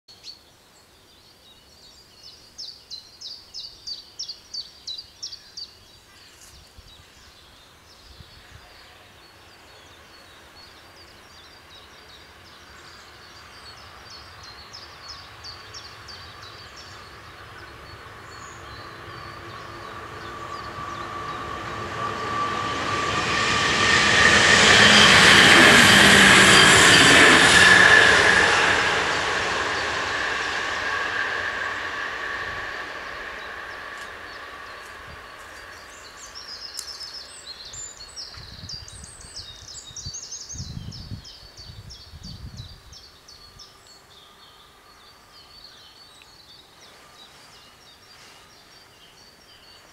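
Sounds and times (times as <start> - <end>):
bird chirping: 0.1 - 22.4, 33.0 - 49.9
diesel train passing: 9.3 - 39.7
high whine: 12.7 - 41.2.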